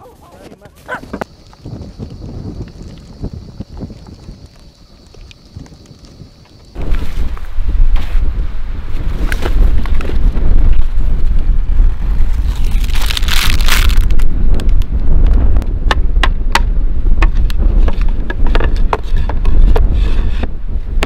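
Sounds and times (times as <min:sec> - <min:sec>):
wind buffeting microphone: 0:00.9 - 0:21.0
plastic packaging crinkling: 0:12.3 - 0:14.2.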